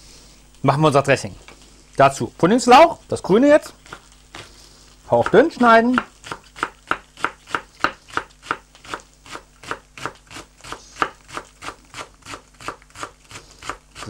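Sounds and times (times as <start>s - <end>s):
knife chopping on wooden board: 3.8s - 4.5s, 5.2s - 14.0s.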